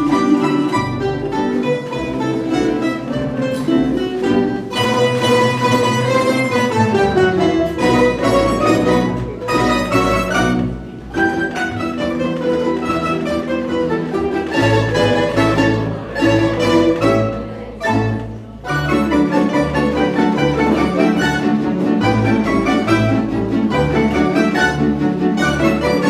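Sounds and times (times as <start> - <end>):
plucked double bass: 0.0 - 26.0
plucked string melody in tremolo: 0.0 - 26.0.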